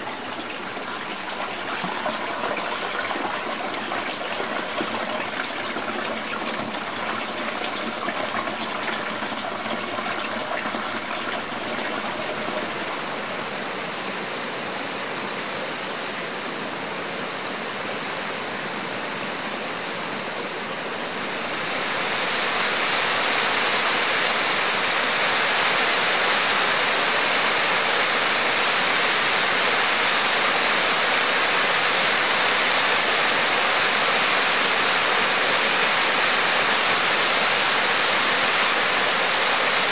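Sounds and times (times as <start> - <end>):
water flowing unevenly: 0.0 - 39.9
waterfall rushing down rock: 21.2 - 39.9.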